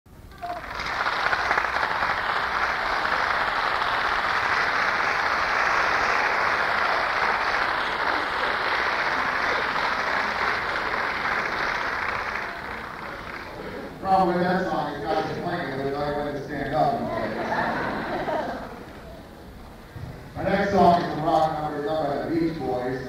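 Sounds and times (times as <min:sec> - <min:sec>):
audience applauding: 0:00.3 - 0:14.0.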